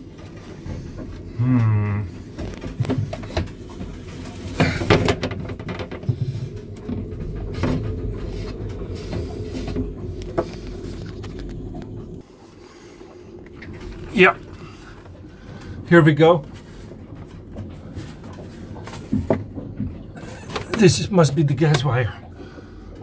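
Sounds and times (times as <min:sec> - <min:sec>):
faint steady hum: 0:00.0 - 0:23.0.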